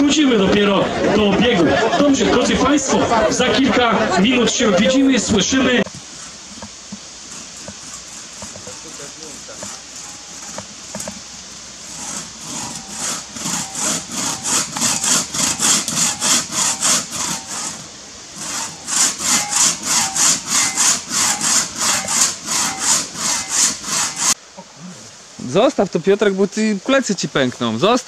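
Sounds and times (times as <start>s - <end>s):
crosscut saw cutting log: 5.6s - 24.4s.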